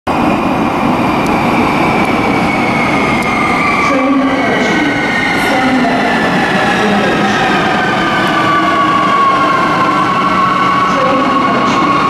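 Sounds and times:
electric train rumbling: 0.1s - 12.0s
high whining tones falling in pitch: 0.3s - 4.0s.

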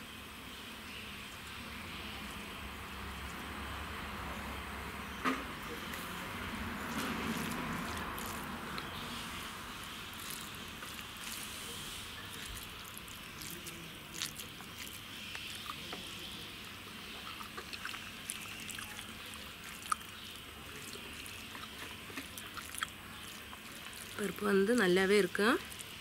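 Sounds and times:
fingers squishing wet rice: 6.9s - 26.0s.

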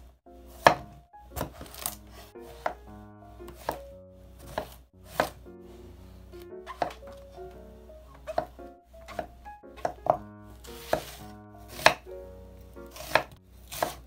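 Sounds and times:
soft background music: 0.3s - 14.0s
knife cutting on wooden board: 4.4s - 5.4s, 9.1s - 12.0s, 12.9s - 14.0s.

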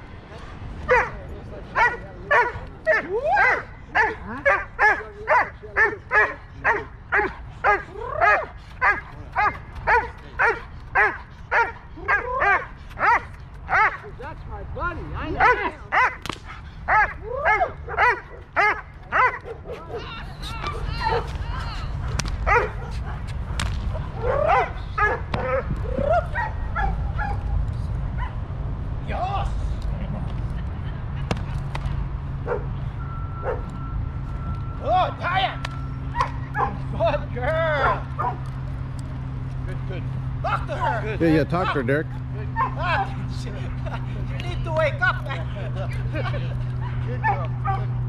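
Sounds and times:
dog barking: 0.9s - 1.2s, 1.8s - 14.0s, 15.4s - 16.2s, 16.9s - 20.1s, 22.5s - 23.2s, 24.2s - 25.7s, 26.4s - 27.4s, 32.4s - 32.7s, 33.4s - 33.7s, 36.2s - 36.8s, 37.8s - 38.4s, 42.6s - 42.8s, 46.8s - 47.9s.

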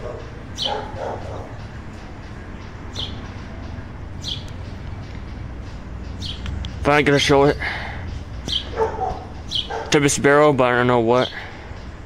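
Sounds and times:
dog barking: 0.0s - 1.6s, 8.6s - 10.0s
high bird chirps: 0.5s - 6.8s, 8.0s - 10.0s.

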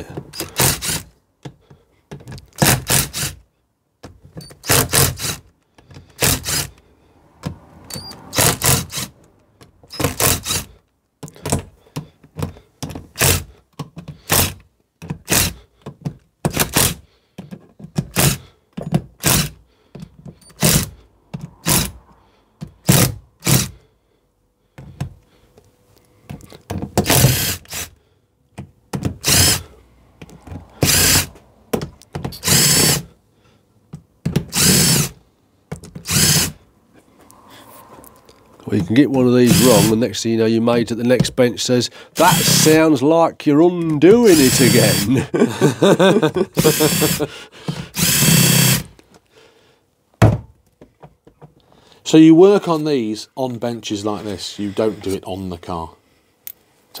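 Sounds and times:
impact wrench bursts: 0.3s - 1.1s, 2.5s - 3.4s, 4.4s - 6.8s, 7.9s - 9.2s, 9.9s - 10.8s, 13.1s - 13.5s, 14.2s - 14.6s, 15.2s - 15.6s, 16.5s - 17.1s, 18.0s - 18.5s, 19.2s - 19.6s, 20.4s - 22.0s, 22.6s - 23.8s, 27.0s - 28.0s, 29.0s - 29.8s, 30.7s - 31.4s, 32.2s - 33.1s, 34.3s - 35.2s, 36.0s - 36.6s, 39.4s - 40.0s, 42.1s - 42.8s, 44.2s - 45.2s, 46.6s - 49.0s.

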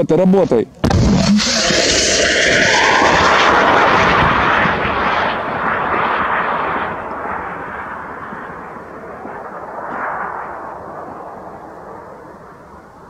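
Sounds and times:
rocket motor hissing: 0.9s - 5.0s.

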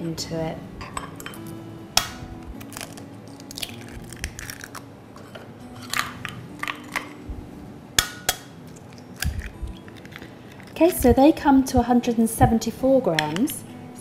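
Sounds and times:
eggs cracking on glass: 2.0s - 4.9s, 5.8s - 7.2s, 8.0s - 11.0s.

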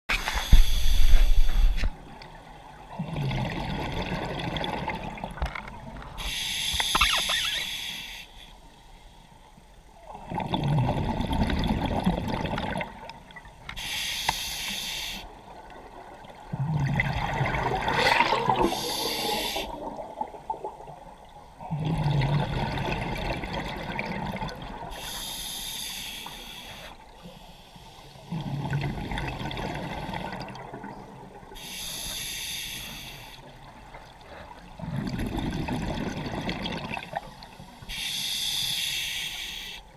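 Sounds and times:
scuba regulator breathing: 0.2s - 1.9s, 6.2s - 8.6s, 13.8s - 15.3s, 18.6s - 19.8s, 24.9s - 28.3s, 31.6s - 33.5s, 37.4s - 39.9s
bubbling exhale: 16.7s - 20.3s.

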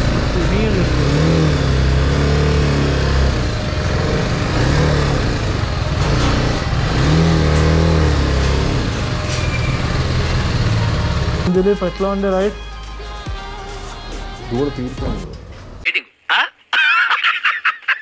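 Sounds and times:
motorcycle engine idling and revving: 0.0s - 12.5s.

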